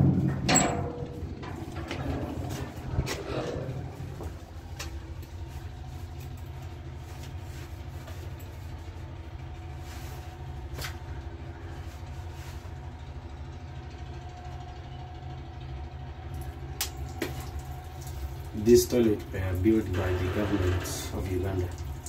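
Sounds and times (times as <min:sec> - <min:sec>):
low mechanical rumble: 0:00.0 - 0:22.0.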